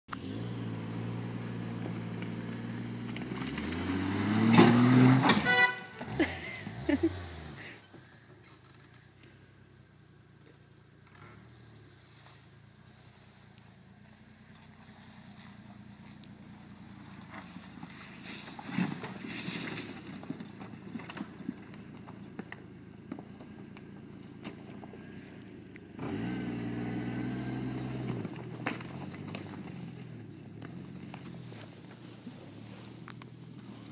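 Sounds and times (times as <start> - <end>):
car engine revving: 0.1 - 7.8, 21.8 - 33.9
stones clacking under wheels: 14.6 - 25.9, 27.9 - 33.9
tyres crunching over rocks: 14.6 - 25.9, 27.8 - 33.9.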